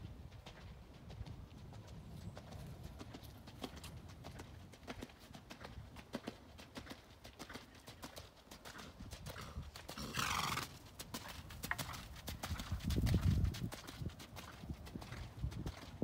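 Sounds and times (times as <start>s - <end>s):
hoofbeats on gravel: 0.0s - 16.0s
horse blowing: 10.0s - 10.8s.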